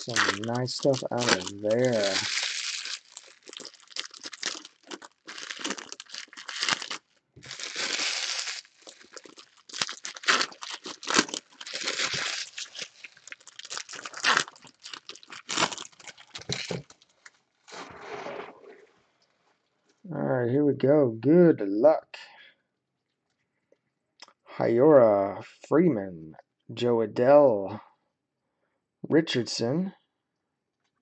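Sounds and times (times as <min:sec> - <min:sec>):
foil wrappers crinkling: 0:00.0 - 0:17.9
foil being torn open: 0:00.0 - 0:18.4.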